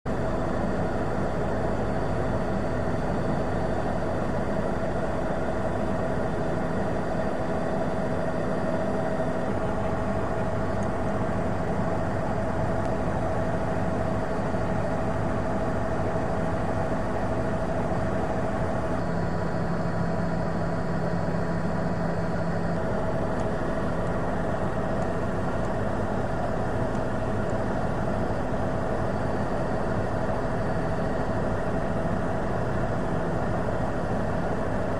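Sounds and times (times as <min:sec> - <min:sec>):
helicopter engine and rotor drone: 0:00.1 - 0:34.9.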